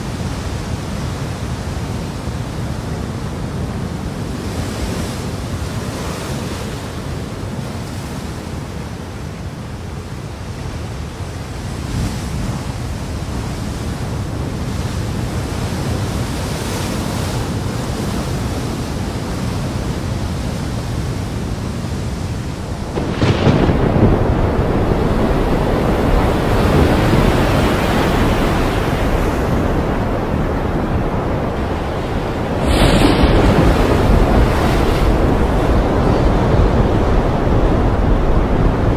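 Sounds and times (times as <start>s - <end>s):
roar of heavy seas: 0.0s - 38.9s
wind: 0.0s - 38.9s
surf breaking on rocky shore: 20.8s - 38.9s.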